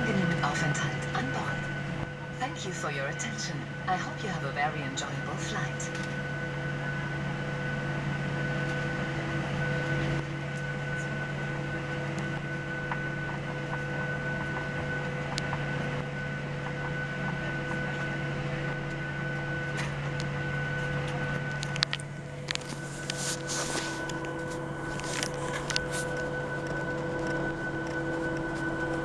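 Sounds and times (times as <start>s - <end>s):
aircraft engines idling hum: 0.0s - 29.0s.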